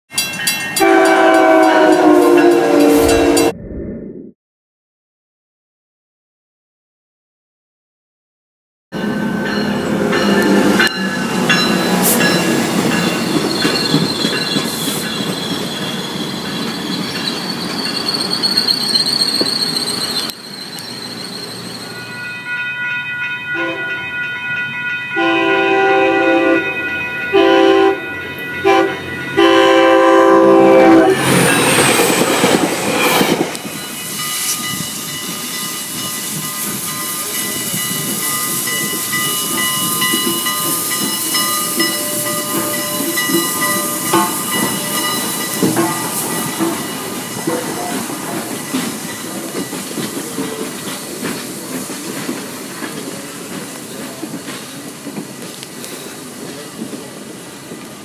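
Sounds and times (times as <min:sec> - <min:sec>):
crossing bell ringing: 0:00.1 - 0:03.5, 0:09.0 - 0:51.3
train rushing past: 0:00.1 - 0:03.8, 0:09.0 - 0:58.0
train horn blasts: 0:00.8 - 0:03.5, 0:23.6 - 0:24.1, 0:25.2 - 0:31.6, 0:41.9 - 0:46.8
steam train hiss: 0:31.2 - 0:58.0
train wheel clicks: 0:37.6 - 0:57.1.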